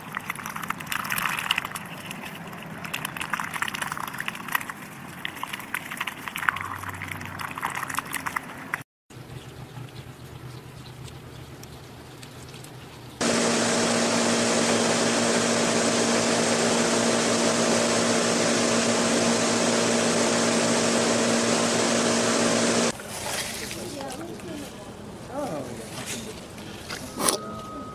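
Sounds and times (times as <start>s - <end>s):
loud machine hum with whoosh: 13.2s - 22.9s.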